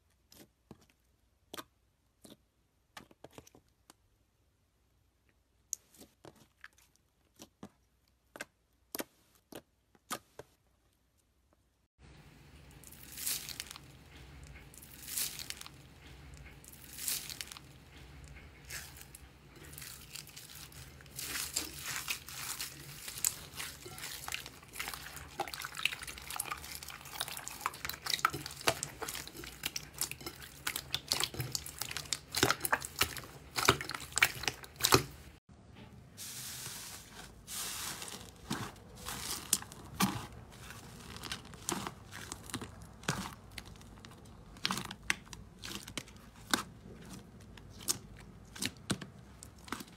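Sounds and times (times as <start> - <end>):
slime crackling and popping: 12.7 - 17.7, 18.7 - 35.4, 37.6 - 49.9.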